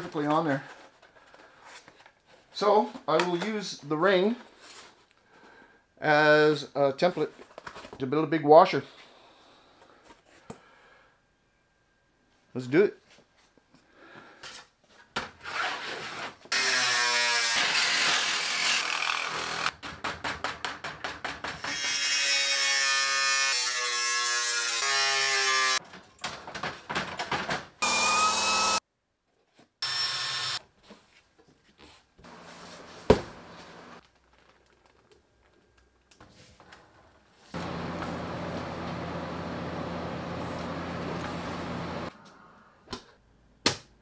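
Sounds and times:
power tools cutting sheet metal: 0:16.5 - 0:19.7, 0:21.7 - 0:25.8, 0:27.8 - 0:28.8, 0:29.8 - 0:30.6
tool whirring up in pitch: 0:27.8 - 0:28.8, 0:29.8 - 0:30.6, 0:37.6 - 0:42.1.

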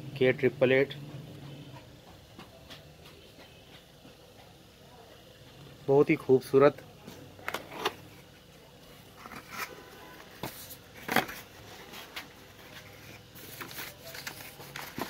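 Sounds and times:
packaging rustling and crinkling: 0:09.1 - 0:15.0.

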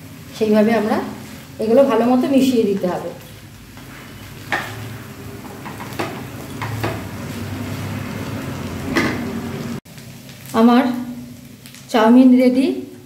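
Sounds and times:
light sizzle in frying pan: 0:00.0 - 0:13.0
spatula scraping and knocking pan: 0:03.7 - 0:07.2.

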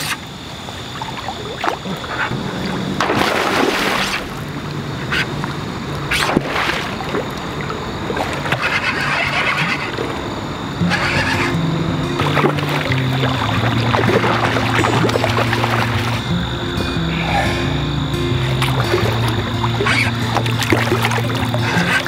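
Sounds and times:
river water running: 0:00.0 - 0:22.0
fish splashing at surface: 0:01.0 - 0:05.2.

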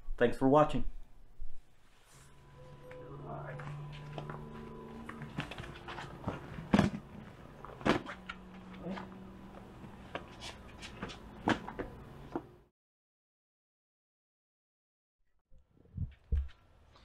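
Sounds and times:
low steady hum: 0:00.8 - 0:12.7.

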